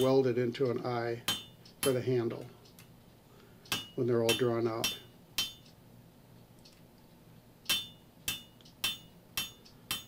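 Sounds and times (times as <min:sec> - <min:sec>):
hammer striking hot metal on anvil: 0:01.3 - 0:02.0, 0:03.7 - 0:05.6, 0:07.7 - 0:10.0.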